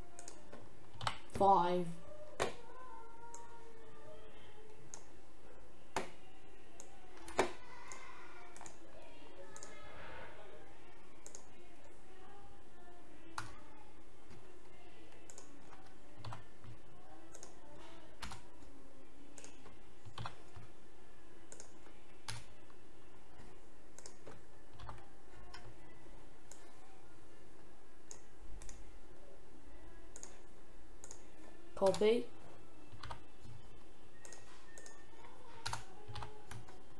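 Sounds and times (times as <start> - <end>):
computer mouse clicks: 0.2 - 0.4, 6.8 - 8.8, 11.2 - 11.5, 15.2 - 15.5, 17.3 - 17.6, 21.5 - 22.5, 23.9 - 25.6, 28.1 - 28.8, 30.1 - 30.4, 31.0 - 31.2, 34.2 - 35.0.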